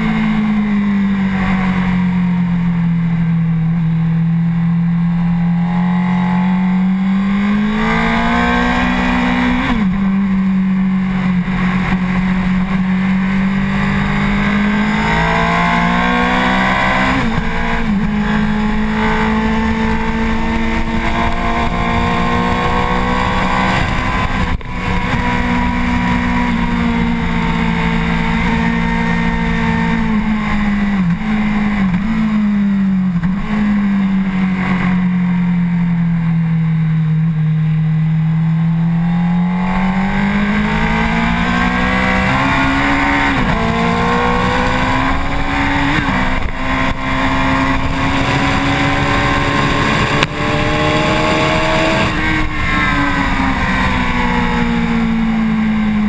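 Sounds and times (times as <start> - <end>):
motorcycle engine revving: 0.0 - 56.0
wind rush: 39.5 - 55.5.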